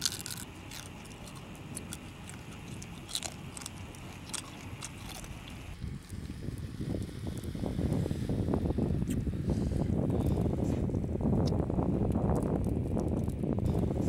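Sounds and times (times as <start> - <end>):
person chewing crab: 0.0 - 6.2
low steady rumble: 0.0 - 14.0.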